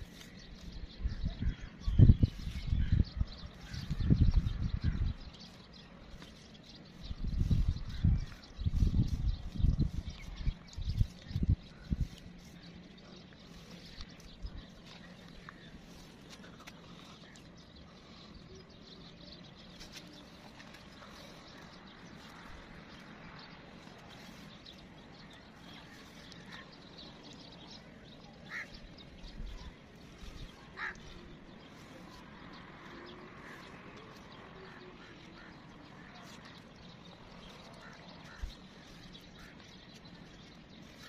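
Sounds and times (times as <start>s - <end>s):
faint outdoor background noise: 0.0s - 41.0s.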